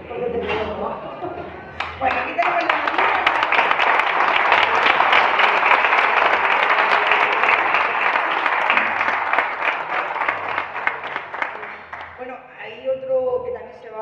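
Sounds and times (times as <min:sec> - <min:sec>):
audience applauding: 0:01.8 - 0:12.2.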